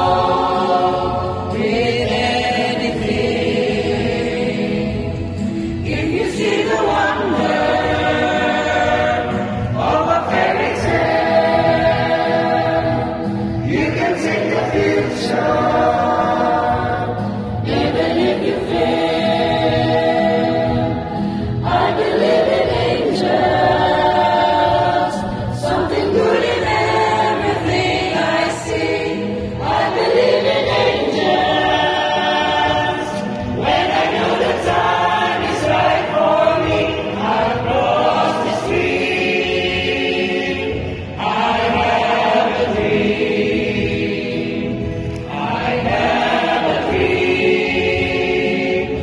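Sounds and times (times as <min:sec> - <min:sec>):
choir singing in harmony: 0:00.0 - 0:49.0.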